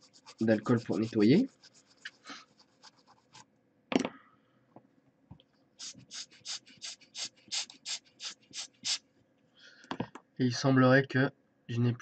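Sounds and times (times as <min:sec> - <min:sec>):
scrubbing a circuit board: 0:00.0 - 0:03.5, 0:05.8 - 0:09.0.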